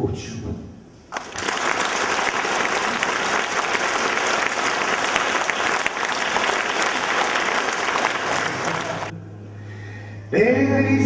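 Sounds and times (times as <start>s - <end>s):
audience applause: 1.1s - 9.1s.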